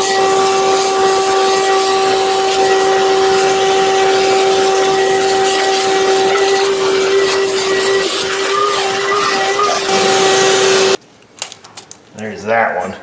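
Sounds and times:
shop vacuum whine: 0.0s - 11.0s.

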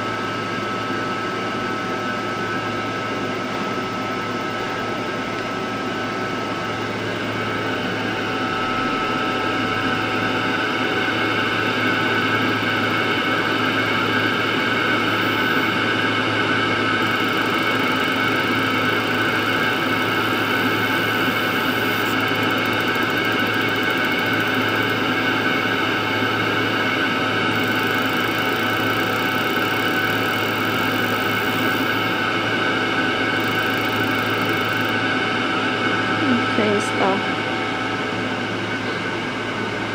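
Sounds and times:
fan whirr: 0.0s - 39.9s
high machine whine: 0.0s - 39.9s
low hum: 3.5s - 13.4s.

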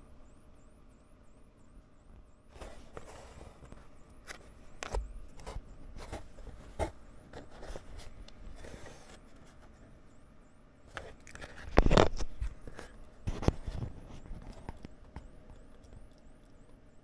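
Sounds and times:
rustle of handling on desk: 2.5s - 9.8s.

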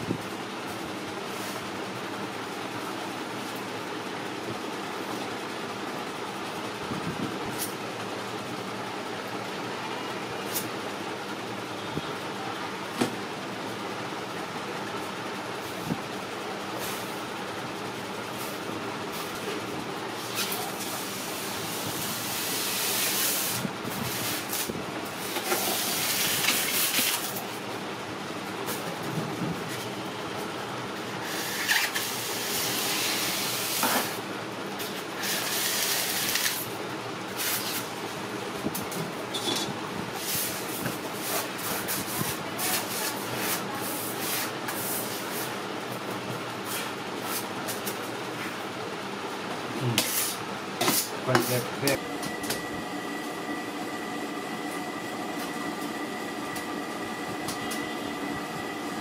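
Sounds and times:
knife scraping metal worktable: 39.3s - 39.7s.

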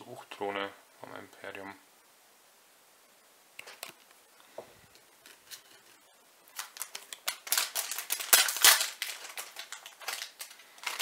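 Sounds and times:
foil wrapper crinkling: 5.2s - 11.0s.

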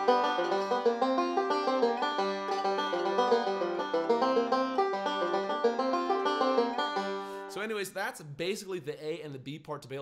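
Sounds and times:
banjo picking: 0.0s - 7.9s.

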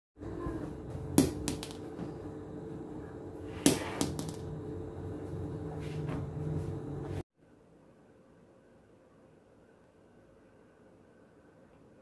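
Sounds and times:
steady low hum: 0.2s - 7.2s
plastic balls bouncing on tiles: 1.1s - 2.0s, 3.6s - 4.5s.

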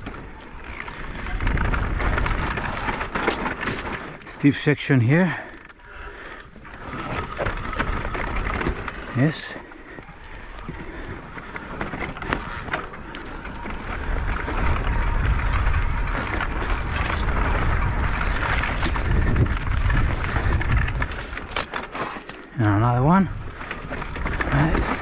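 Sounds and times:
bike knocking and rattling: 0.0s - 25.0s
bike tyre noise: 0.0s - 25.0s
wind rushing over microphone: 13.6s - 21.6s.

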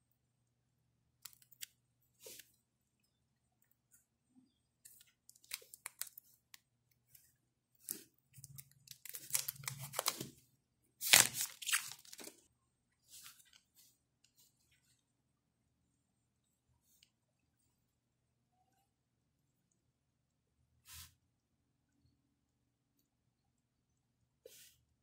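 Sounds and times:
plastic film peeling and crinkling: 4.9s - 6.3s, 7.8s - 10.3s, 11.0s - 12.4s.

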